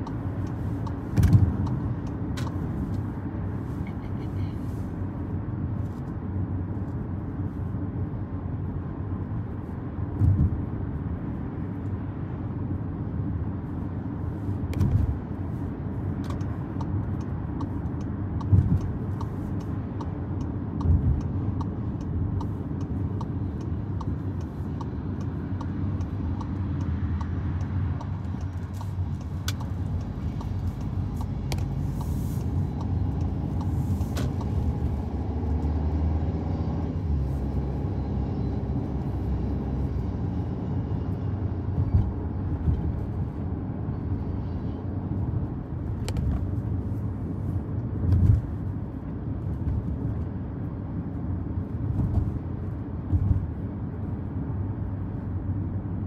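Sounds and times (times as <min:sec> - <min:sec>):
car road and engine rumble: 0:00.0 - 0:56.0
light regular ticks: 0:16.2 - 0:34.6.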